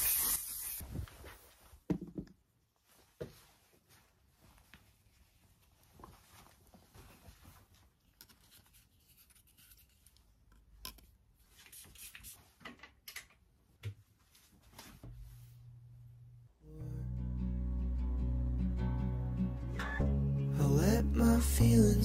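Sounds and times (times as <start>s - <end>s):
rustling and handling noises: 0.8s - 12.9s, 13.6s - 15.7s.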